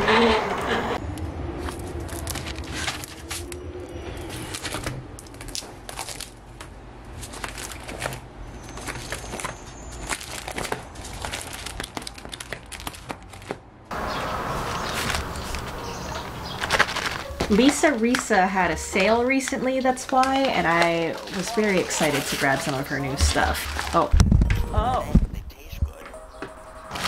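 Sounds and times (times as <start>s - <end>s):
packaging crinkling: 4.3s - 13.6s, 14.7s - 24.1s.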